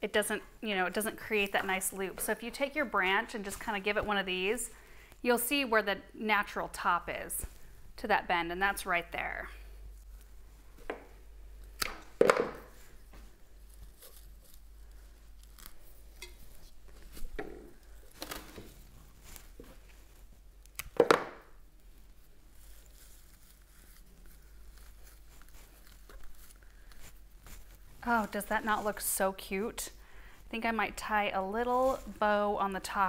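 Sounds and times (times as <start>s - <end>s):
leaves rustling: 12.8s - 20.3s, 22.1s - 29.0s.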